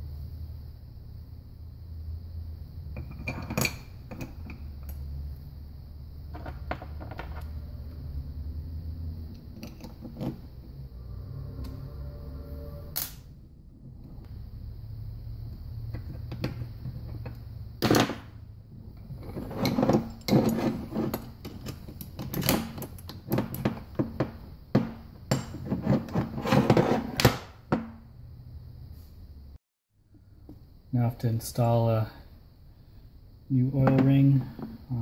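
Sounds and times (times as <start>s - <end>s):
steady low hum: 0.0s - 35.0s
metal parts clinking on workbench: 3.0s - 5.0s.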